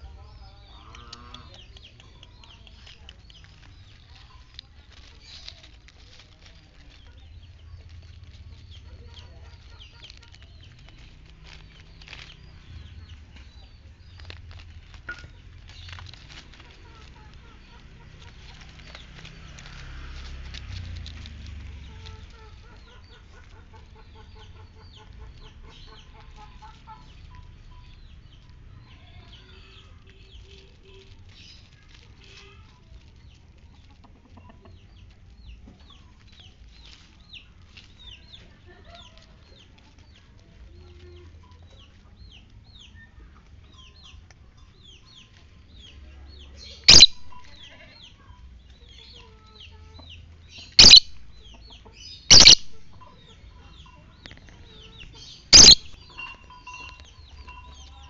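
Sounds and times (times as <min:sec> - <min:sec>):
birds twittering: 0:00.0 - 0:58.0
loud sharp high bird calls: 0:46.8 - 0:47.7, 0:50.6 - 0:51.4, 0:52.1 - 0:53.0, 0:55.2 - 0:56.2.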